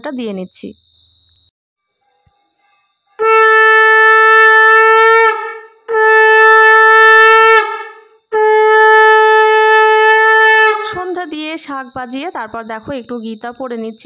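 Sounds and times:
conch shell blasts: 3.2s - 11.0s.

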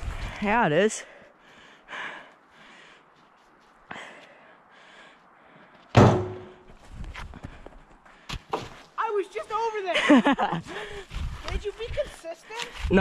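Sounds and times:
footsteps crunching in snow: 3.1s - 4.4s, 10.5s - 13.0s
loud thump with ringing tail: 6.0s - 6.6s.

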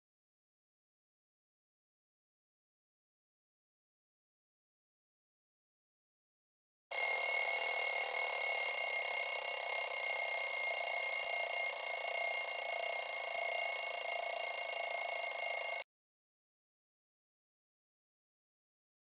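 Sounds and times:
smartphone alarm ringing: 6.9s - 15.9s.

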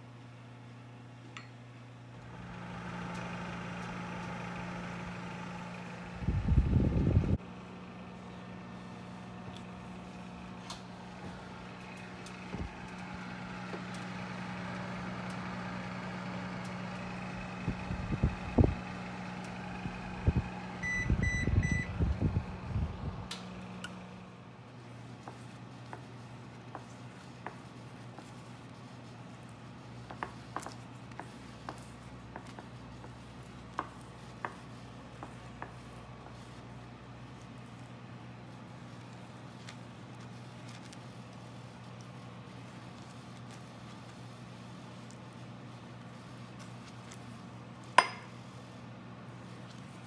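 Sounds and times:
steady low hum: 0.0s - 50.0s
short electronic beeps: 20.8s - 21.9s.

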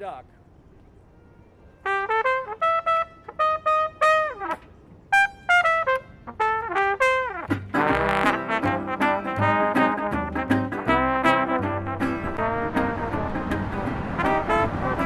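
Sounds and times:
trumpet solo: 1.8s - 15.0s
small jazz band: 1.9s - 15.0s
double bass low notes: 6.6s - 15.0s.

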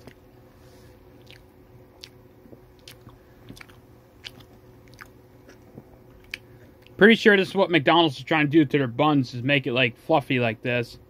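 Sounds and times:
wet chewing mouth sounds: 1.2s - 7.0s.

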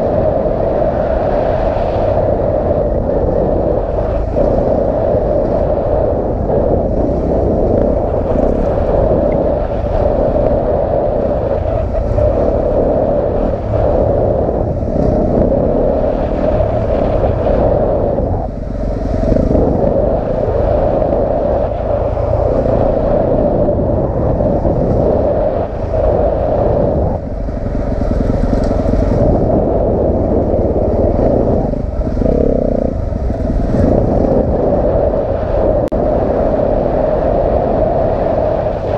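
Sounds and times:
wind: 0.0s - 38.9s
trail rattle: 3.8s - 35.1s
dirt bike engine revving: 27.2s - 34.2s.

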